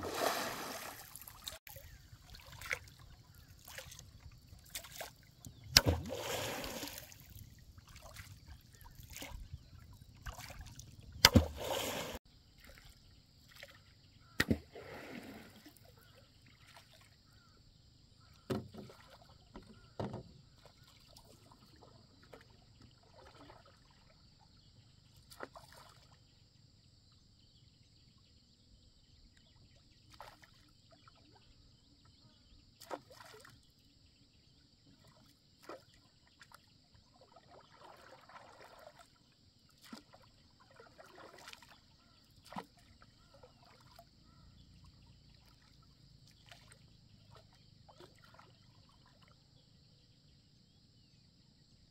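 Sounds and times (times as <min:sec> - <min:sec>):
fish splashing in water: 0:00.0 - 0:12.8, 0:37.2 - 0:44.4
paddle knocking and sloshing: 0:00.0 - 0:12.9, 0:18.2 - 0:23.9, 0:35.0 - 0:44.4.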